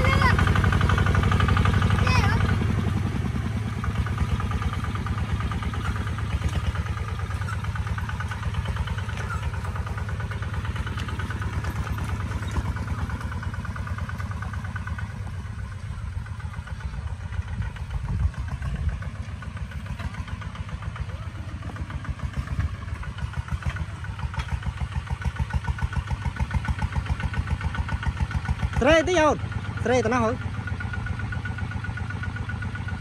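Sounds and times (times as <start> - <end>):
diesel tractor engine running: 0.0 - 33.0.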